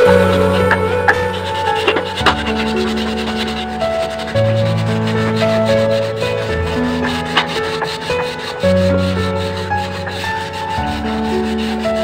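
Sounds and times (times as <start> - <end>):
sandpaper scrubbing wet tiles: 0.0 - 12.0.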